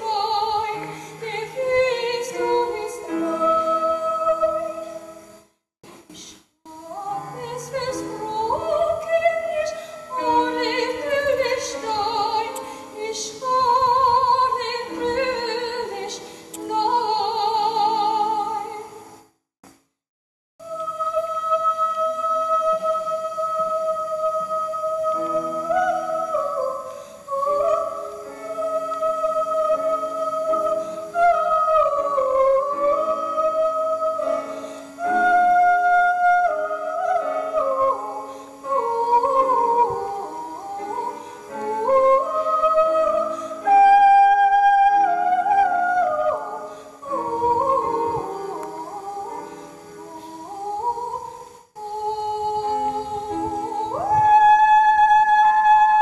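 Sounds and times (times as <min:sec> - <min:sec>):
woman singing: 0:00.0 - 0:05.2, 0:06.0 - 0:19.1, 0:20.6 - 0:56.0
piano accompaniment: 0:51.9 - 0:56.0.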